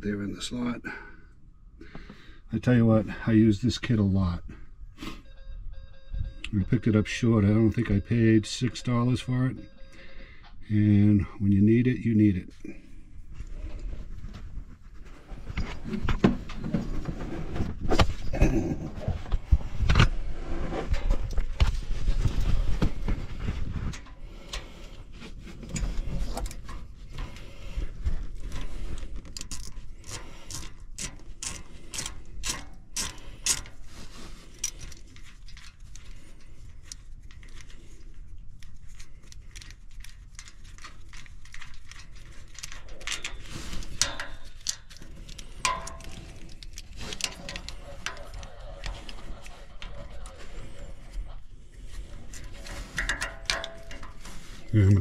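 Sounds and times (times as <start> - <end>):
hand ratchet clicking: 28.4 - 33.8.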